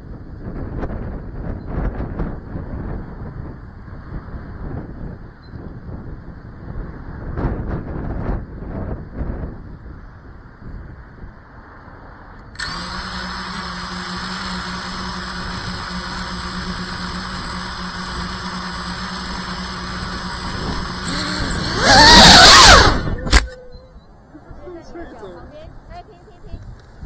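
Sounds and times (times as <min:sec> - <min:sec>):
drone motors whining: 0:12.4 - 0:24.3.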